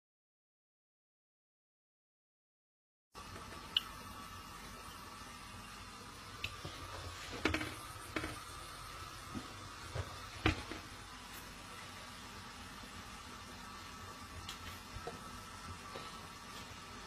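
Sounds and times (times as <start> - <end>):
faint steady hum: 3.2 - 17.0.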